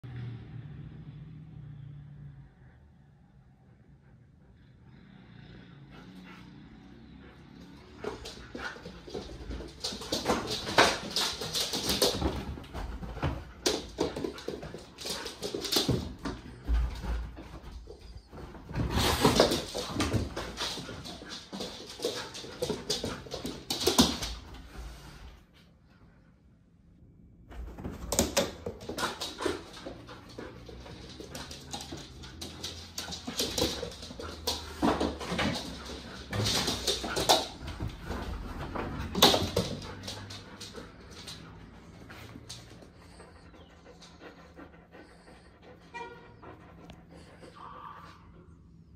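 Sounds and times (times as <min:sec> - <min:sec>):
puppy whining: 0:17.8 - 0:18.7.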